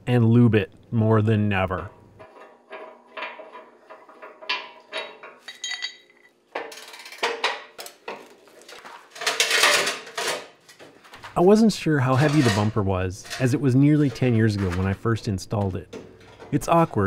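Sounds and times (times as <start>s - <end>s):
tools clinking on metal: 3.2s - 7.0s.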